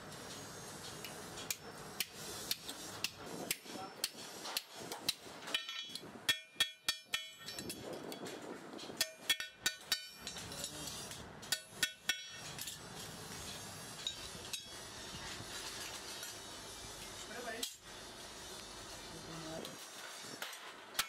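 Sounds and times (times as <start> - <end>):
metal clinking on metal: 5.5 - 12.8.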